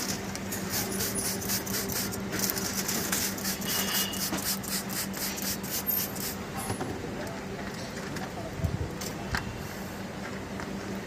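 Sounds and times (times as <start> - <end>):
spray bottle misting: 0.6 - 6.4
plastic film rustling and crackling: 2.1 - 3.4.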